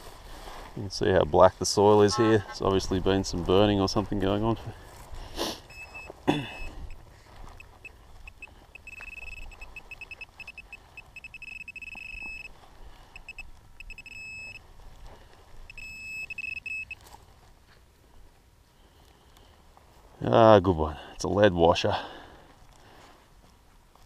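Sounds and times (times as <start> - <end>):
pinpointer beeping: 5.7 - 12.6, 13.2 - 14.6, 15.7 - 17.0.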